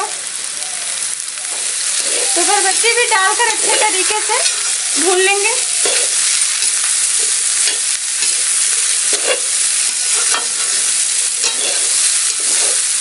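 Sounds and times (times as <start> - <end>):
vegetables sizzling in hot oil: 0.0 - 13.0
metal spatula scraping pan: 9.1 - 12.9.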